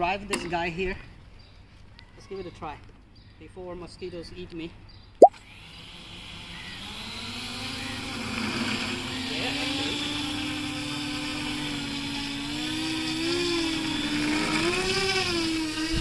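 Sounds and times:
propeller motors buzzing whine: 5.6s - 16.0s.

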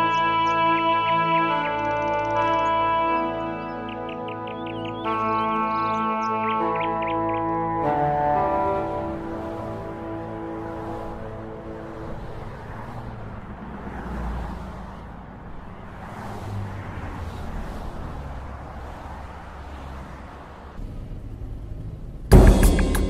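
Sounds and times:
road traffic passing: 0.0s - 23.0s
sudden loud hit: 22.3s - 23.0s.

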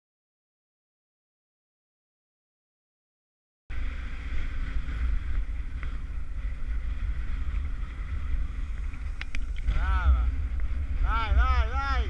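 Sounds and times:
wind buffeting microphone: 3.7s - 12.0s.

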